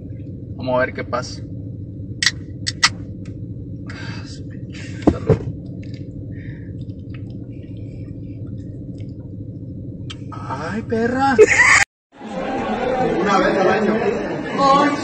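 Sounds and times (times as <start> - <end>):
low hum in car cabin: 0.0 - 11.9.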